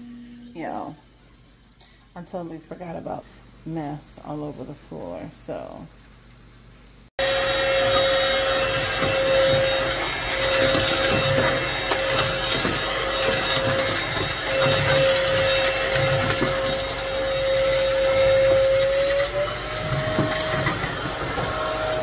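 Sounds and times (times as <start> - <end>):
stick vacuum running: 7.2 - 22.0.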